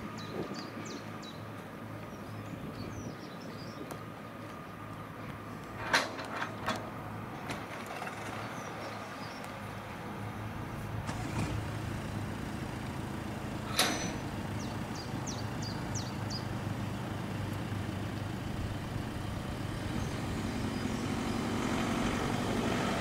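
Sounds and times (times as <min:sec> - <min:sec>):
diesel engine hum: 0:00.0 - 0:23.0
sharp metal clank: 0:13.7 - 0:14.2
bird chirps: 0:14.6 - 0:16.5.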